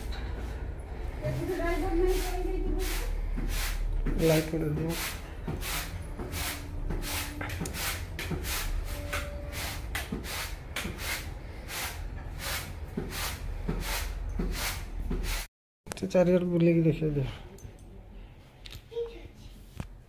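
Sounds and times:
scratchy rubbing strokes: 1.3 - 15.5.

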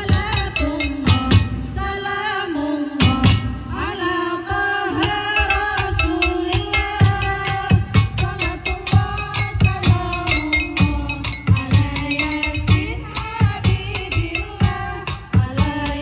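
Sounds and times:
percussion on kitchen utensils: 0.0 - 1.6, 5.0 - 16.0
women singing into microphones: 0.0 - 16.0.

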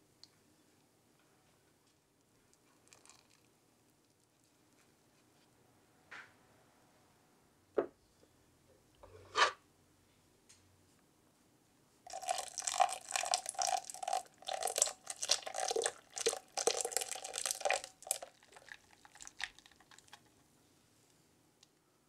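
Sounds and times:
cream being poured: 2.6 - 3.5, 12.1 - 20.4.

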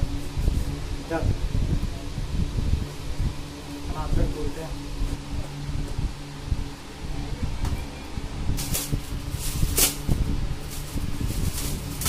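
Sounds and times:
pedestal fan humming: 0.0 - 12.0
wrapping paper tearing and crinkling: 8.6 - 12.0.

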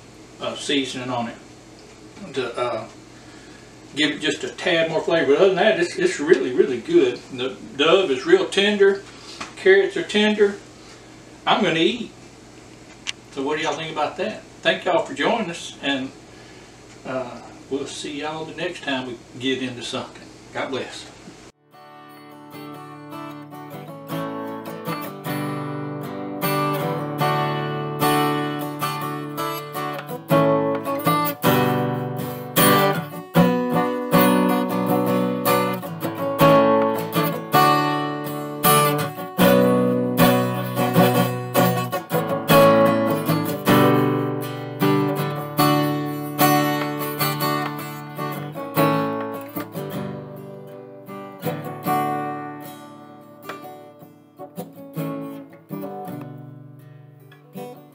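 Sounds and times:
acoustic guitar strumming and picking: 21.6 - 57.9.

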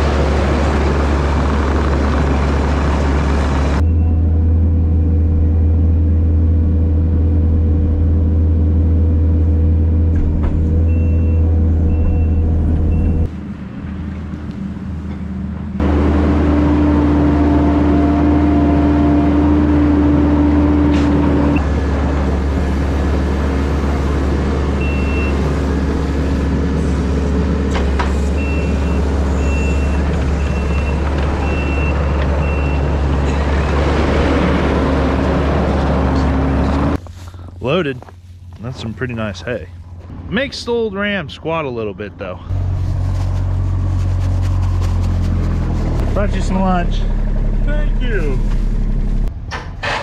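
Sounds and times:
diesel engine running: 0.0 - 50.0
backup alarm beeping: 10.8 - 13.3, 24.8 - 25.4, 28.4 - 33.0.

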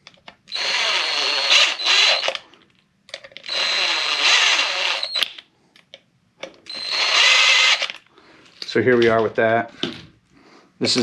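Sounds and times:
cordless drill motor whining: 0.5 - 2.4, 3.4 - 5.3, 6.7 - 8.0.

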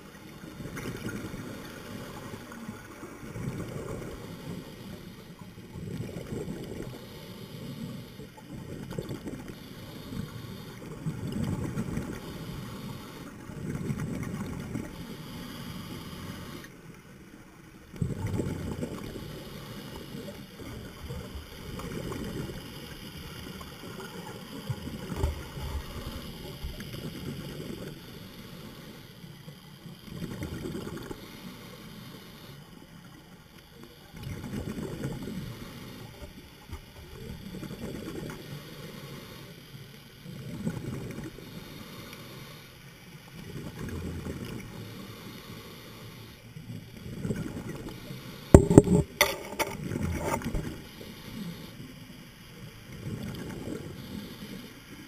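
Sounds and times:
underwater bubbles gurgling: 0.0 - 17.0, 17.8 - 28.0, 46.6 - 51.1, 52.6 - 54.4
steady hiss: 0.0 - 55.0.

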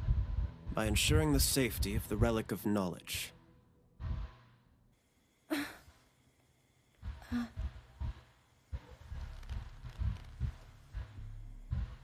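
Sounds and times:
low soft thumps: 0.0 - 2.4, 7.0 - 12.0.

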